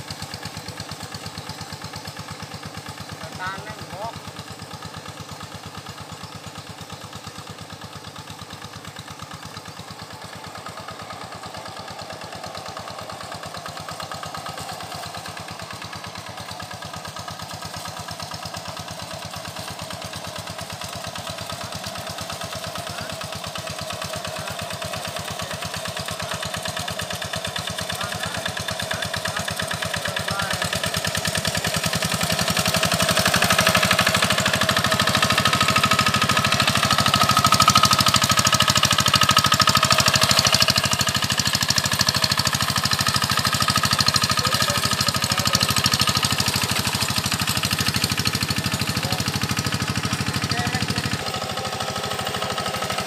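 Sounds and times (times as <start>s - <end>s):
hand tractor engine chugging: 0.0s - 53.0s.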